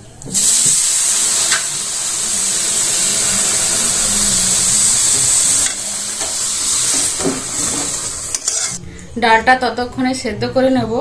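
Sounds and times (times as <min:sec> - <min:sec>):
water poured into hot oil sizzling: 0:00.3 - 0:08.8.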